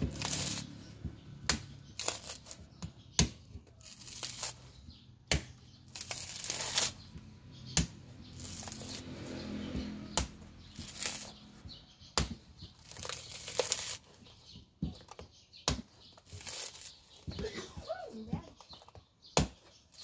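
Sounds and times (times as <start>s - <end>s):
husk fibres tearing and rustling: 0.0s - 0.8s, 1.9s - 2.7s, 3.8s - 4.8s, 5.8s - 7.2s, 8.3s - 9.3s, 10.6s - 11.5s, 12.7s - 15.2s, 16.1s - 17.4s
knife striking coconut husk: 0.0s - 4.7s, 5.3s - 7.1s, 7.7s - 14.0s, 14.8s - 17.3s, 19.3s - 20.0s.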